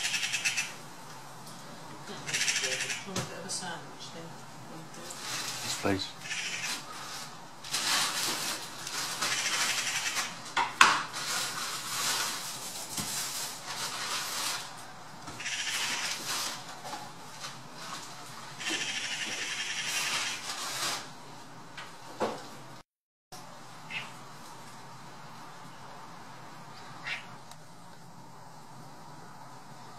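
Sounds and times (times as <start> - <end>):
magpies rattling chatter calls: 0.0 - 0.8, 2.2 - 3.2, 6.2 - 6.9, 9.2 - 10.4, 15.4 - 16.2, 18.6 - 20.4, 23.9 - 24.1, 27.0 - 27.3.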